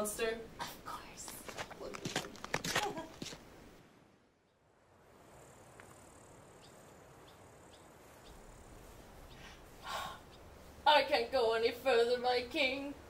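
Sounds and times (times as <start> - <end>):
steady high hiss: 0.0 - 13.0
crickets chirping: 4.5 - 10.9.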